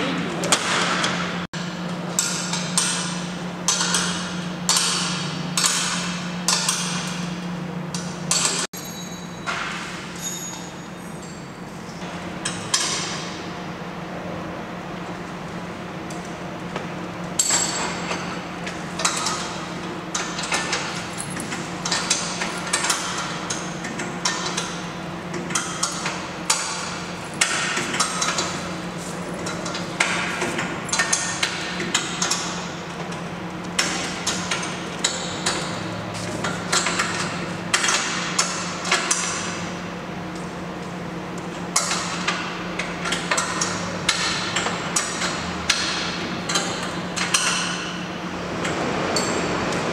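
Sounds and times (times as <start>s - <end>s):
steady low hum: 0.0s - 49.9s.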